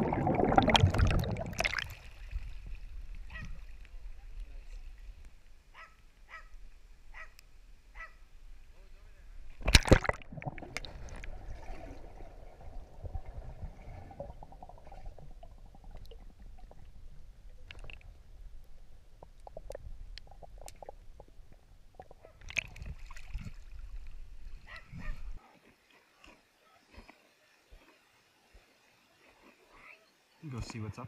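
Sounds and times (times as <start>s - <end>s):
faint clicks and gurgles: 9.5s - 28.2s.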